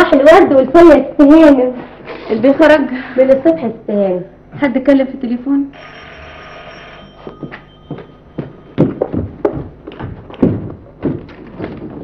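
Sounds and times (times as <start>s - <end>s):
short thuds or knocks: 8.8s - 12.0s.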